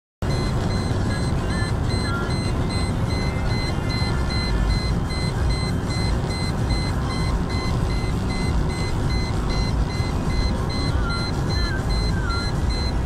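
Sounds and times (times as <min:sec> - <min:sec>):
car cabin road and engine rush: 0:00.2 - 0:13.0
high electronic beeps: 0:00.2 - 0:13.0.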